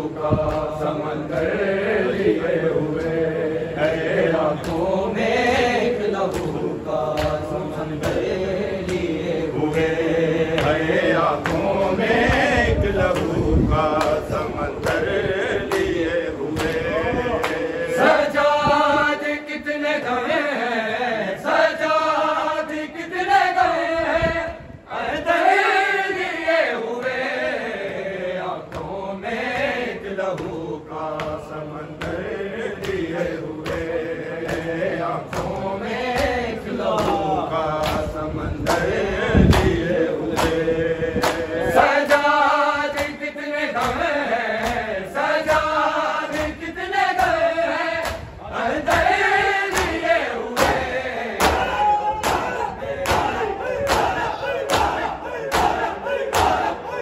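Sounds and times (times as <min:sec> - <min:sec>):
group of men chanting: 0:00.0 - 0:57.0
hands slapping bare chests: 0:35.3 - 0:38.9, 0:39.5 - 0:40.6, 0:48.9 - 0:50.0, 0:50.6 - 0:56.8.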